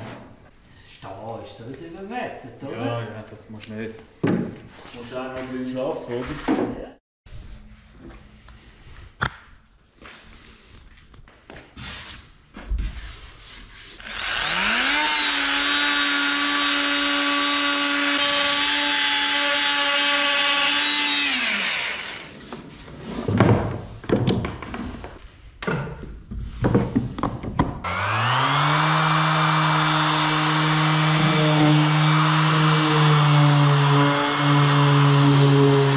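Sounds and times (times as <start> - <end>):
orbital sander running: 14.0 - 22.3, 27.8 - 35.9
oscillating multi-tool cutting plywood: 14.0 - 22.3, 27.8 - 35.9.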